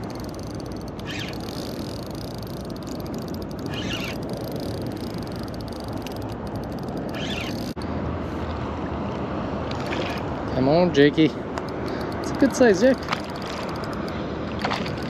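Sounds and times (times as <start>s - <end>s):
water noise: 0.0s - 15.0s
wind: 0.0s - 15.0s
short raspy sounds: 1.0s - 2.4s, 3.6s - 5.2s, 7.0s - 7.8s.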